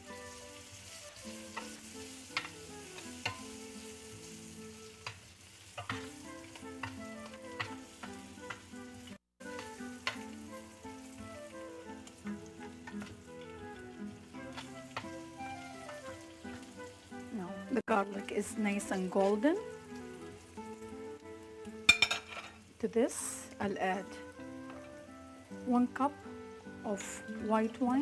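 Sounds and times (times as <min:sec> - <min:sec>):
garlic sizzling in oil: 0:00.0 - 0:28.0
utensil clicking against pan: 0:01.5 - 0:03.5, 0:05.0 - 0:08.7, 0:09.4 - 0:10.3, 0:12.0 - 0:13.5.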